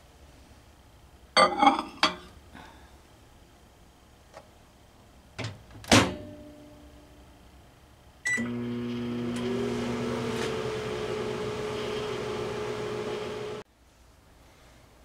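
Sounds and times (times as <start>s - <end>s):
microwave humming: 8.2s - 13.6s.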